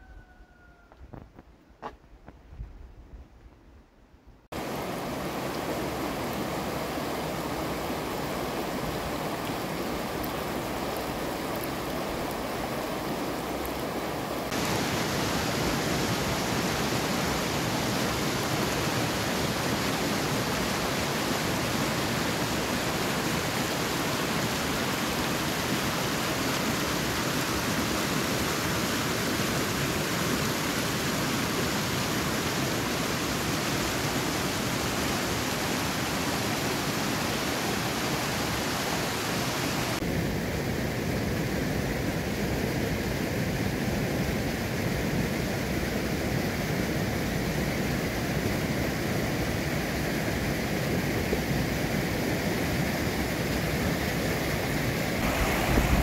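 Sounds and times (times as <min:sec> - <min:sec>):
water rushing over stone: 0:04.6 - 0:40.0, 0:54.4 - 0:56.0.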